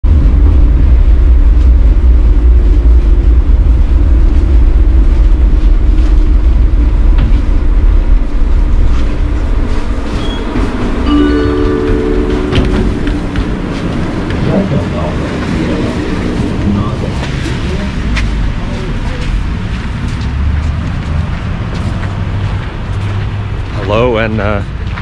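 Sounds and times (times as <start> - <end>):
tram rumbling and rattling on rails: 0.0 - 25.0
steady tone: 10.9 - 15.3.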